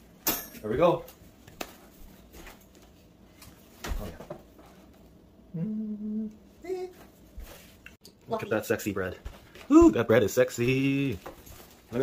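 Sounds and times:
person humming: 5.5 - 7.0.

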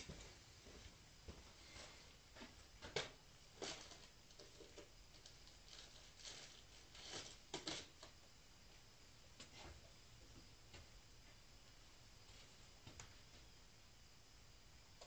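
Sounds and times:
quiet room noise: 0.0 - 15.0.

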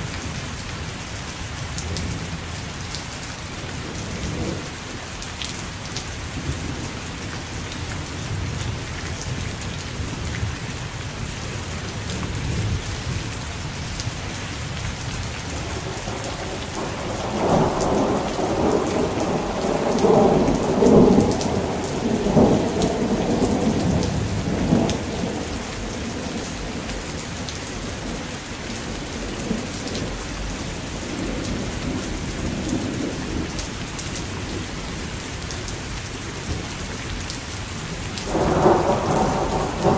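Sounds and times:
steady rain: 0.0 - 39.9
thunder rolling: 15.6 - 26.9, 38.3 - 39.9.

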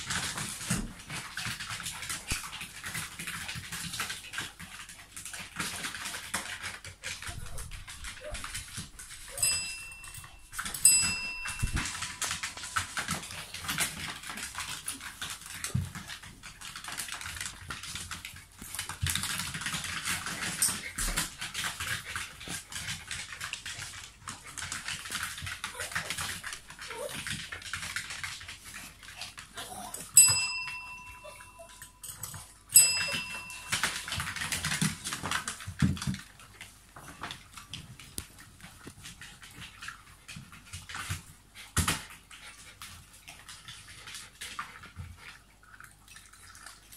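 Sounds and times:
dog noises and shuffling: 0.0 - 46.9
desk bell dinging: 10.8 - 11.7, 30.2 - 31.6, 32.8 - 34.0.

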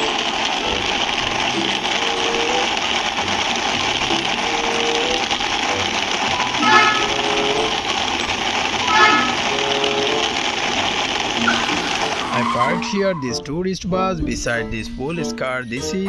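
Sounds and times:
toy bus whirring: 0.0 - 13.6
toy horn honks: 6.4 - 7.7, 8.8 - 10.2.

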